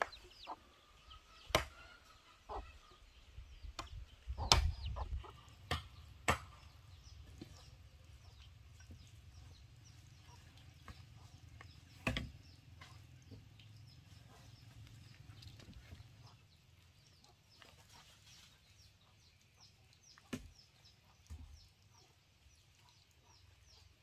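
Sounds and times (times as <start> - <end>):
chickens clucking faintly: 0.0 - 24.0
bamboo chopping knocks: 12.0 - 12.4.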